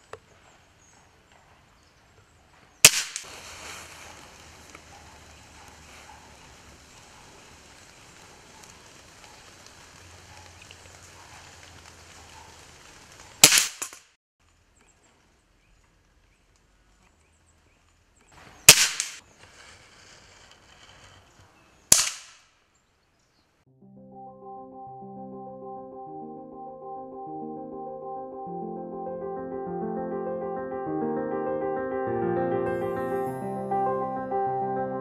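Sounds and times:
air rifle shots: 0:02.8 - 0:03.3, 0:13.4 - 0:14.1, 0:18.7 - 0:19.2, 0:21.9 - 0:22.5
background music: 0:23.7 - 0:35.0.

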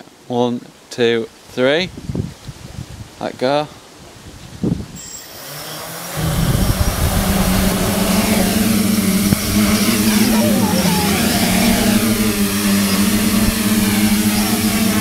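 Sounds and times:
quadcopter propeller buzz: 0:05.0 - 0:15.0.

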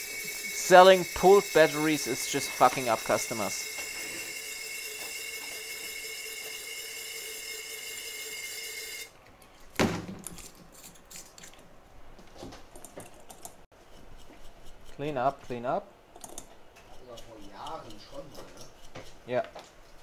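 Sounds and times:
machine whine: 0:00.0 - 0:09.1.

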